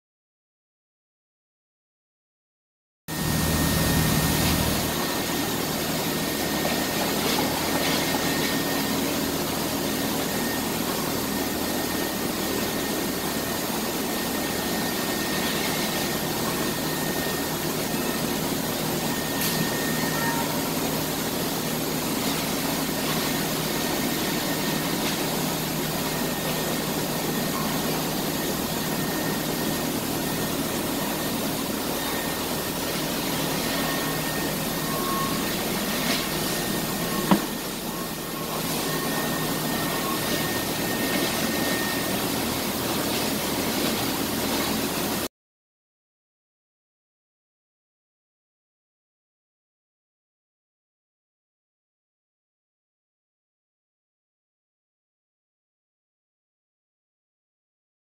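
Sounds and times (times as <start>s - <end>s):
industrial machinery roaring: 3.1s - 45.2s
faint high whine: 3.1s - 45.3s.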